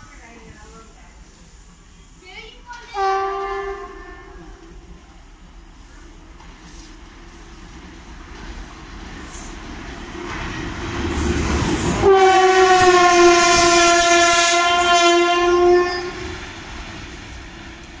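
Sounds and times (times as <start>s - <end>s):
electric locomotive rumbling: 0.0s - 18.0s
train horn blast: 2.9s - 4.8s, 12.0s - 16.3s.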